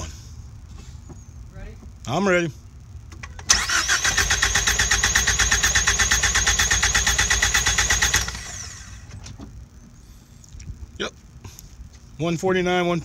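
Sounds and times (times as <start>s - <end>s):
engine starter whirring: 3.2s - 9.4s.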